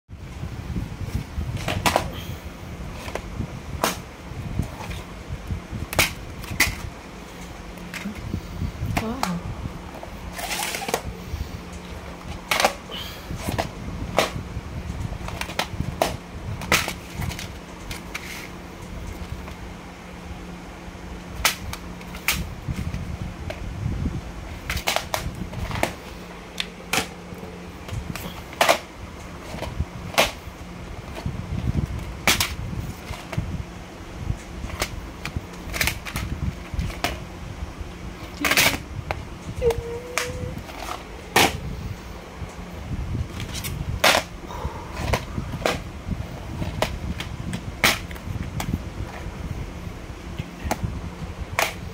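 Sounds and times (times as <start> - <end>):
low steady hum: 0.1 - 51.9
plastic cases clicking and snapping: 38.2 - 38.8.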